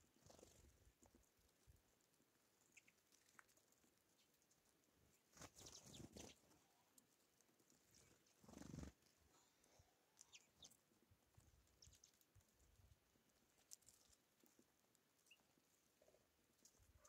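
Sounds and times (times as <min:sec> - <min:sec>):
birds fluttering: 0:00.0 - 0:02.1, 0:05.1 - 0:06.7, 0:07.7 - 0:09.3
birds pecking at seed: 0:00.0 - 0:17.0.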